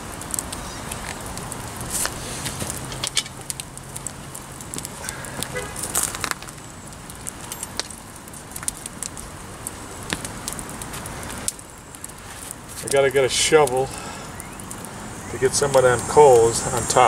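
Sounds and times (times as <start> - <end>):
campfire crackling and popping: 0.0 - 17.0.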